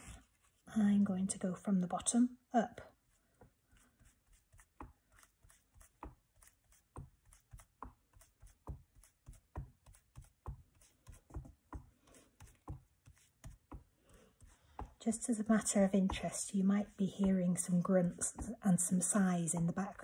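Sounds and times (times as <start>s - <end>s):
blending tool dabbing on card: 3.8s - 15.0s.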